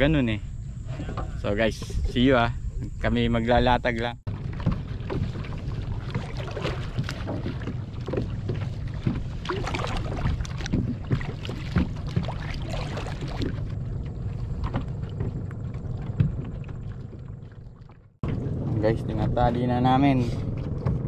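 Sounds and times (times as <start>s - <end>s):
steady low rumble: 0.0s - 21.0s
water splashing against kayak hull: 4.3s - 19.4s.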